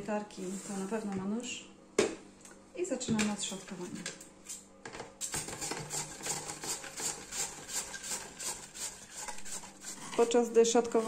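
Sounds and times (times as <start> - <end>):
cabbage scraping on mandoline slicer: 5.4 - 11.0.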